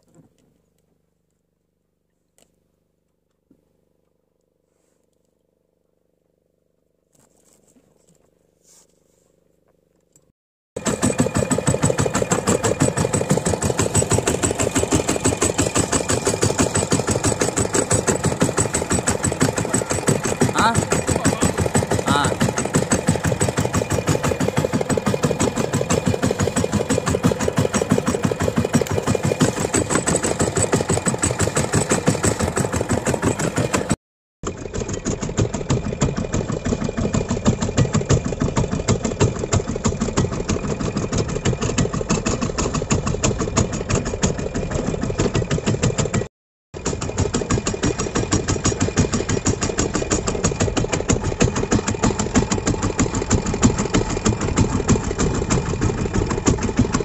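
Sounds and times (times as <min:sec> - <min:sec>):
boat engine knocking: 0:10.8 - 0:57.0.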